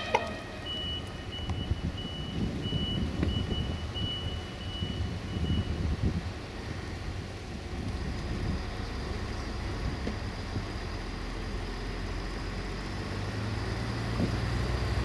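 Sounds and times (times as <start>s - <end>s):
high electronic warning beeps: 0.0s - 5.8s
train engine low rumble: 0.0s - 15.0s.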